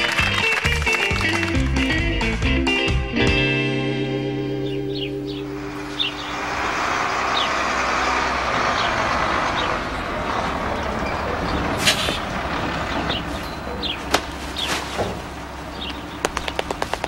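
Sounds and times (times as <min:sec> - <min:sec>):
garbage truck engine rumble: 0:04.3 - 0:17.0.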